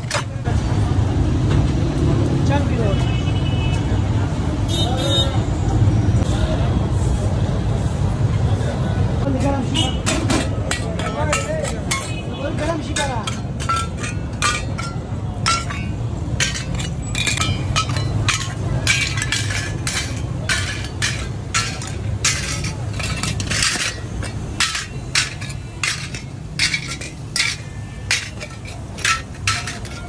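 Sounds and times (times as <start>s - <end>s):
metal lids clinking on pots: 0.0s - 0.4s, 10.0s - 30.0s.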